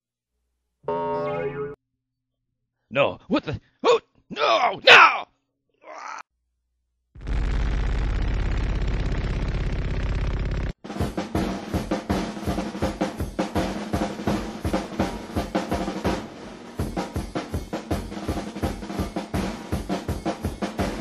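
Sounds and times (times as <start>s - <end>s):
fast drum-kit beat: 10.8s - 21.0s.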